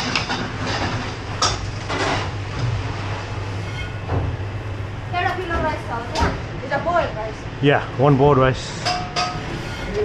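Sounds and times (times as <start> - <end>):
steady machine hum: 0.0 - 10.0
metal dishes knocking and scraping: 8.8 - 10.0.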